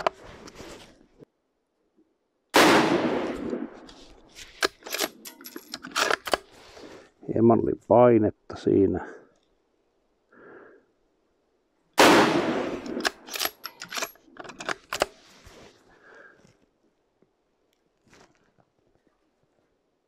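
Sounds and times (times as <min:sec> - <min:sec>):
rifle shot with ringing tail: 0:02.6 - 0:03.8, 0:12.0 - 0:12.9
rifle bolt metallic clicks: 0:04.5 - 0:06.5, 0:12.8 - 0:15.2.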